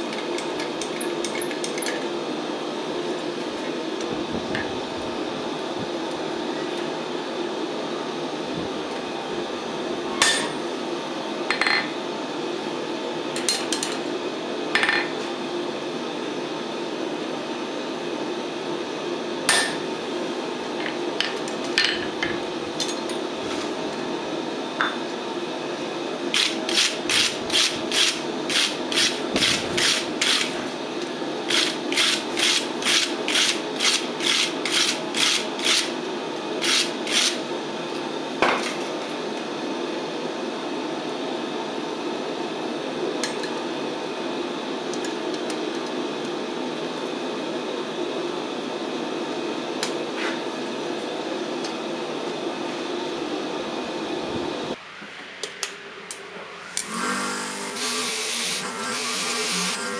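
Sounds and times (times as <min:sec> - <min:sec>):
steady hum: 0:49.4 - 0:59.9.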